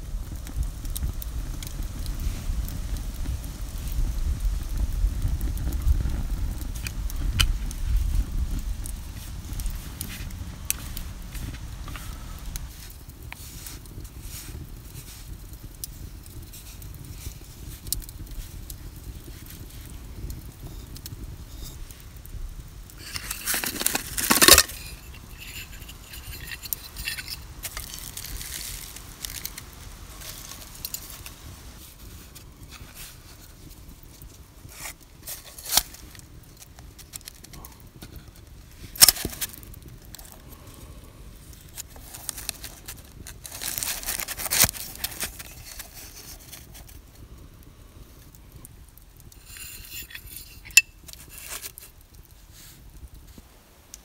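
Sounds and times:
baking paper crinkling: 22.9s - 40.9s, 41.5s - 47.1s, 49.4s - 52.7s.

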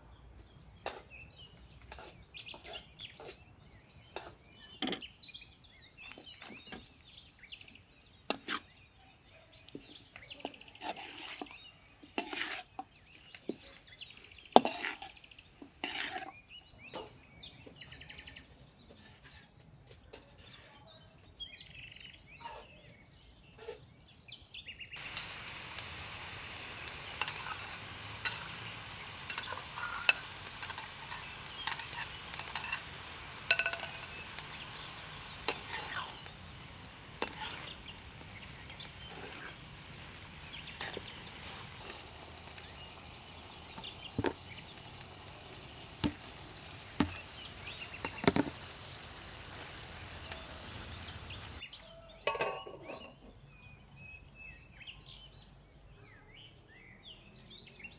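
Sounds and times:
food sizzling in a wok: 1.9s - 3.3s, 10.4s - 13.6s, 14.2s - 15.2s, 15.8s - 16.3s, 25.0s - 51.6s
metal spatula scraping a pan: 1.9s - 3.4s, 4.1s - 5.1s, 8.3s - 8.7s, 10.4s - 13.0s, 14.6s - 17.2s, 26.8s - 42.6s.

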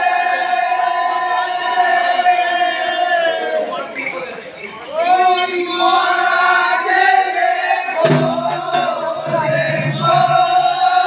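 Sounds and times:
group chanting with held notes: 0.0s - 3.8s, 5.0s - 11.0s
deeper voices singing: 4.9s - 11.0s.

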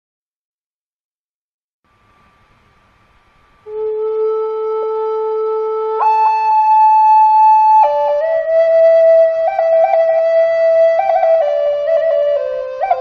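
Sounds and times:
slow woodwind music: 3.5s - 13.0s.

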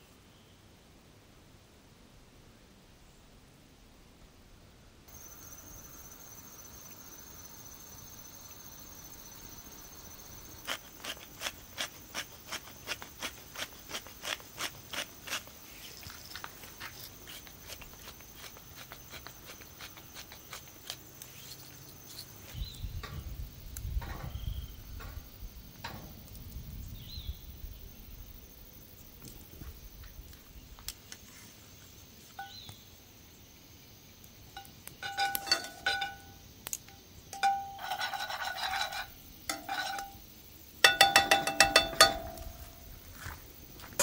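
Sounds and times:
crickets trilling: 5.1s - 44.0s
frying pan knocking on grill: 40.8s - 42.7s.

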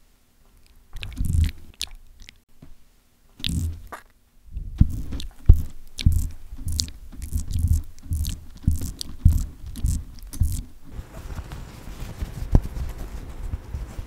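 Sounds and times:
spatula scraping crunchy nuts: 4.8s - 10.8s
paper rustling: 6.6s - 14.0s.

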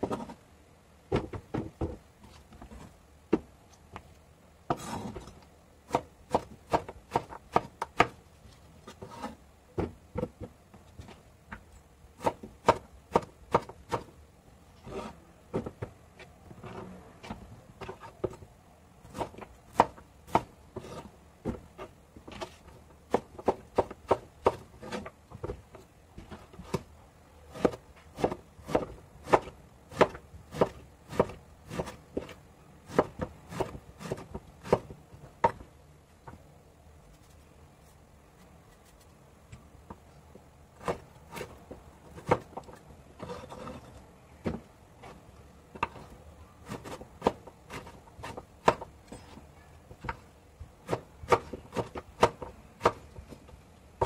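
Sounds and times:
cleaver chopping on wooden board: 5.9s - 8.2s, 27.5s - 34.9s, 46.7s - 48.9s, 50.8s - 53.0s.

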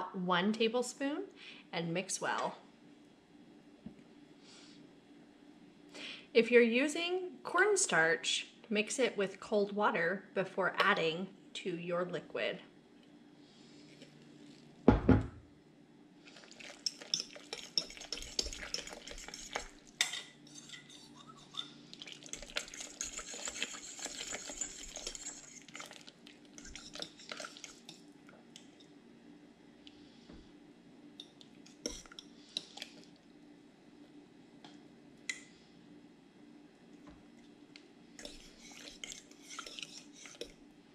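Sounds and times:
spoon scraping a crock: 16.6s - 28.0s, 31.7s - 33.0s, 38.2s - 40.6s.

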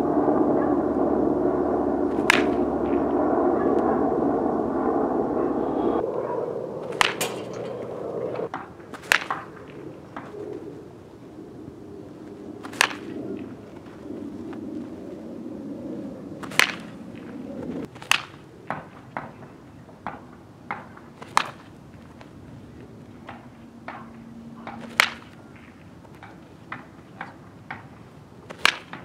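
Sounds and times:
baseball bat cracking ball: 2.1s - 3.0s, 6.8s - 10.4s, 12.6s - 13.9s, 16.4s - 22.4s, 23.2s - 29.0s.

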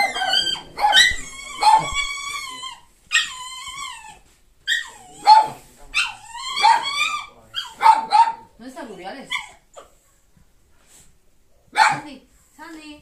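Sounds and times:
dog whining: 0.0s - 8.0s, 9.3s - 10.0s.

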